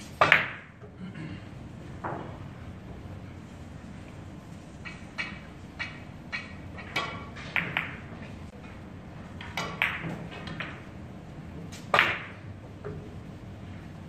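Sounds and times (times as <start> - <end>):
billiard balls clicking: 0.0 - 0.8, 4.8 - 11.0, 11.6 - 13.2
cue striking ball: 0.1 - 0.8, 4.8 - 8.2, 9.4 - 10.9, 11.9 - 12.4.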